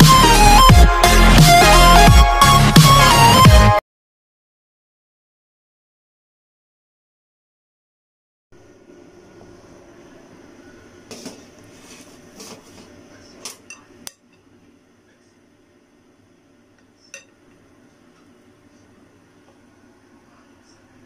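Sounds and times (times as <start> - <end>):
kitchenware clinking: 17.1 - 17.4.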